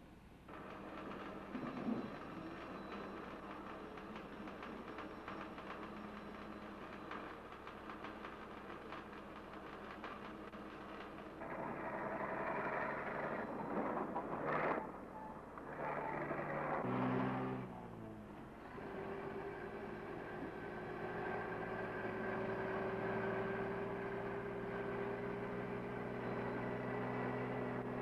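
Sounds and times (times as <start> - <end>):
steady mechanical clatter: 0.4 - 17.0
diesel engine working in surges: 0.5 - 28.0.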